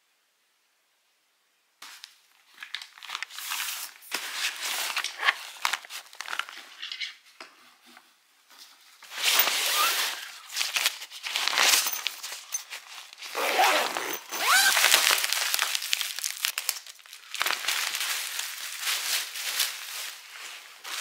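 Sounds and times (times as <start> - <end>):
nylon bag rustling: 2.6 - 6.6, 9.1 - 21.0.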